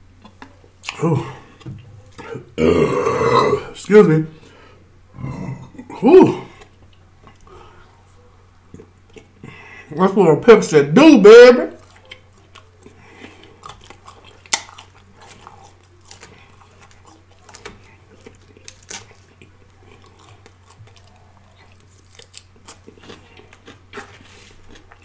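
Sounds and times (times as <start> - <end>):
chewing crisp salad: 5.8 - 9.8, 11.7 - 25.0.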